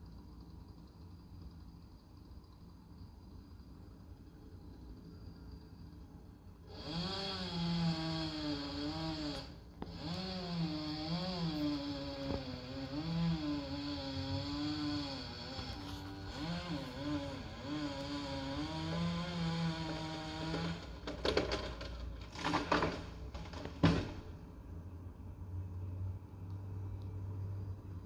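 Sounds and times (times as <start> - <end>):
chainsaw cutting: 6.7 - 23.8.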